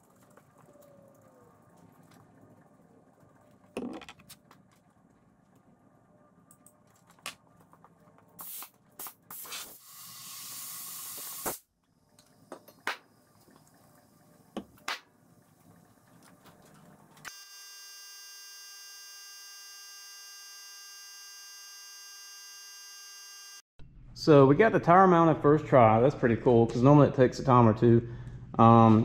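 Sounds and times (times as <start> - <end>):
compressed air hiss: 8.4 - 11.6
steady buzzing tone: 17.3 - 23.6.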